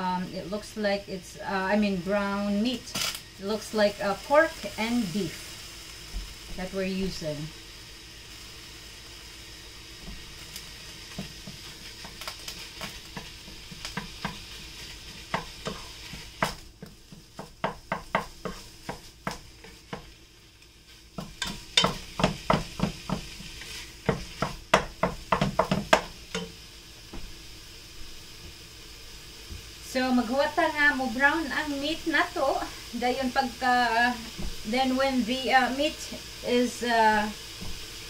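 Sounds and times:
meat sizzling: 0:00.0 - 0:38.0
wooden spatula knocking and scraping: 0:12.8 - 0:20.1, 0:21.2 - 0:26.5.

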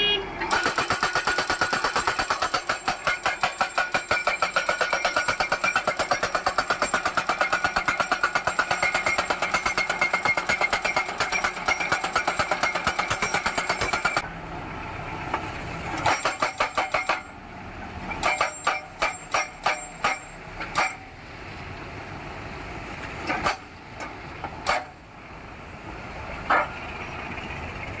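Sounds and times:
post driver hammering blows: 0:00.5 - 0:14.2, 0:16.0 - 0:17.4, 0:18.1 - 0:21.1, 0:23.2 - 0:25.0.

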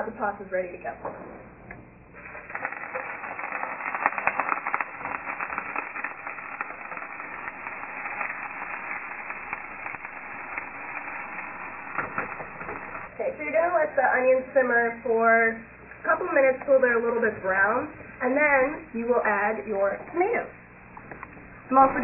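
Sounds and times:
onions sizzling in frying pan: 0:02.2 - 0:15.4.

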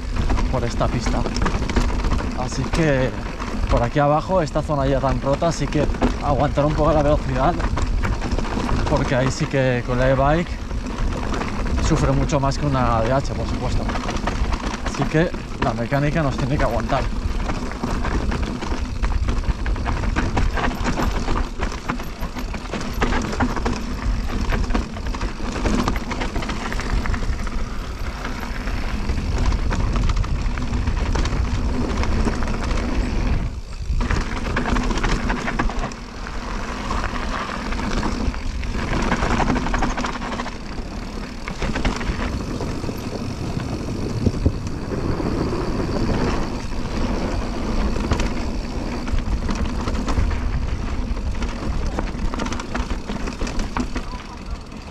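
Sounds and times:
bike clattering over rocks: 0:00.0 - 0:54.9
wind rushing on microphone: 0:26.7 - 0:35.9, 0:40.7 - 0:52.4.

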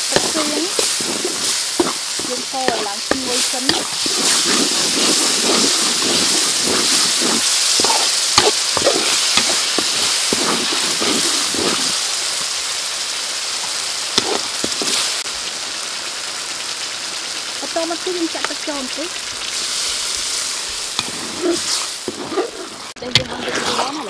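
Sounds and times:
ladle scraping a pan: 0:00.0 - 0:12.0, 0:14.2 - 0:15.1, 0:19.6 - 0:24.0
sauce sizzling in a wok: 0:00.0 - 0:24.0.

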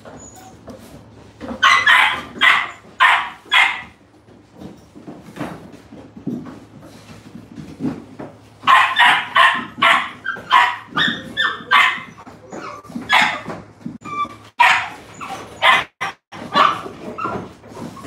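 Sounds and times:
puppies whining squeals: 0:00.0 - 0:03.0, 0:10.0 - 0:18.0
puppies barking and yipping: 0:00.0 - 0:04.0, 0:08.6 - 0:18.0.

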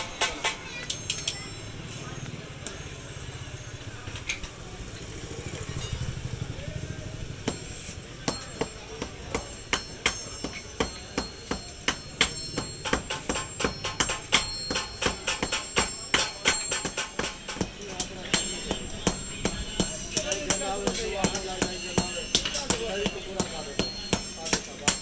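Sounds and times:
sledgehammers striking steel on anvil: 0:00.0 - 0:02.1, 0:07.4 - 0:25.0.

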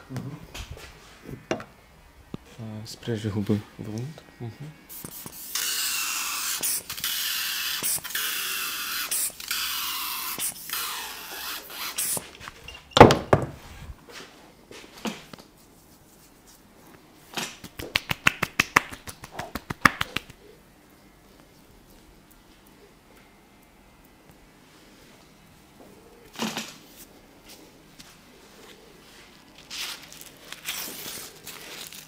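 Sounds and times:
spray bottle hissing: 0:04.9 - 0:12.3
hands slapping face: 0:17.4 - 0:20.4.

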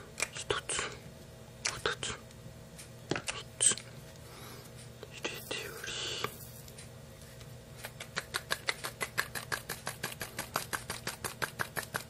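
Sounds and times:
buckshot pellets clicking: 0:08.2 - 0:12.0.

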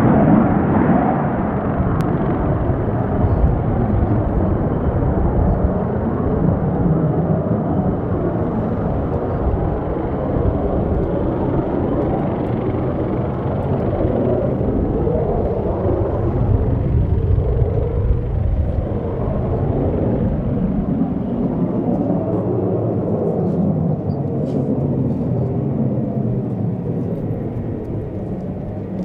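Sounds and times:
loud jet rumble: 0:00.0 - 0:29.0.

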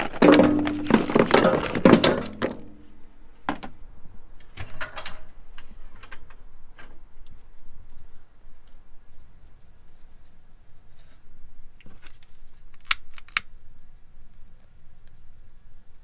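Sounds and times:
charcoal clattering into metal hopper: 0:00.0 - 0:02.9
metal knocks and clicks: 0:00.2 - 0:02.8.

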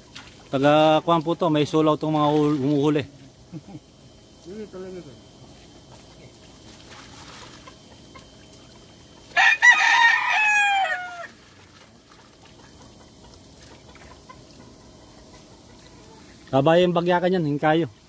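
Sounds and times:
rooster crowing: 0:09.3 - 0:11.4.

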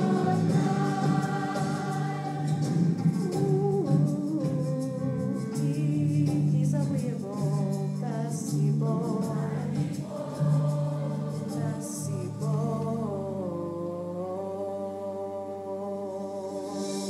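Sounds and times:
children's choir singing: 0:00.0 - 0:04.1, 0:09.0 - 0:13.5.

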